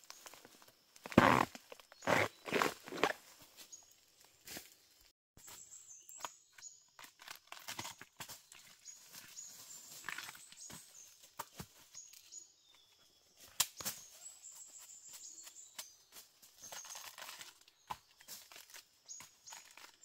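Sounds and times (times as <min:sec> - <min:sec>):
husk tearing and crackling: 0:01.0 - 0:03.2, 0:16.7 - 0:17.6.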